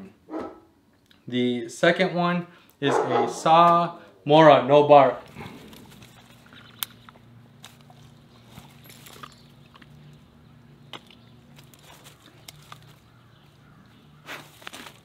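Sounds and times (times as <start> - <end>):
faint low hum: 0.0 - 15.0
dog crunching through dry leaves: 11.4 - 15.0.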